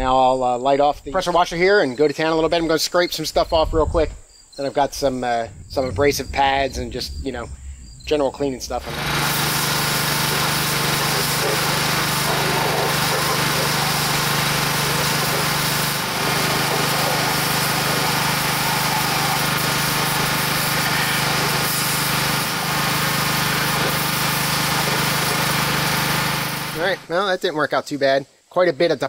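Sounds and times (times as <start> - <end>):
water jet hissing: 8.4 - 27.1
pressure washer engine running: 8.7 - 27.1.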